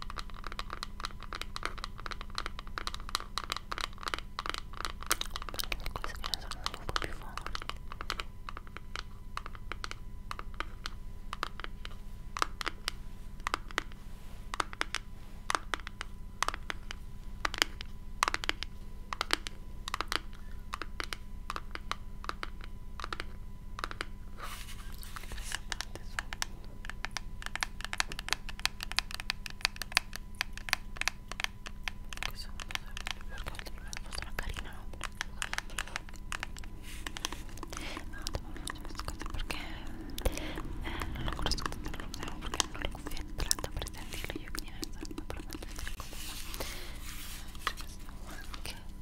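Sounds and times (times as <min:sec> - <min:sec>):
fingers tapping on object: 0:00.0 - 0:24.1, 0:25.2 - 0:46.9
electrical hum and whine: 0:00.0 - 0:49.0
scratching rub: 0:32.4 - 0:48.8.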